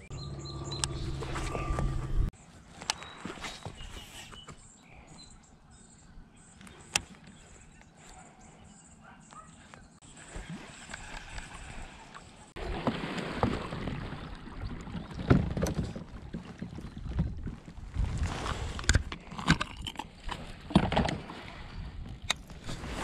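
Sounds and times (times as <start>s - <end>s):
water lapping against a kayak hull: 10.0s - 23.0s
wind noise on microphone: 14.0s - 20.0s.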